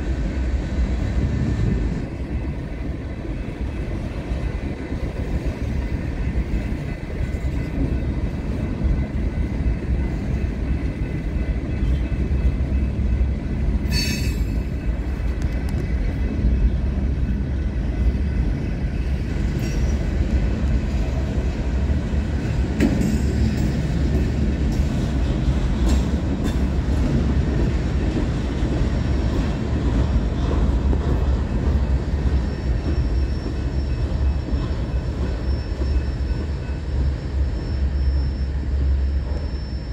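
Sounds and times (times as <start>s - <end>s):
train wheels rumbling on rail: 0.0s - 39.9s.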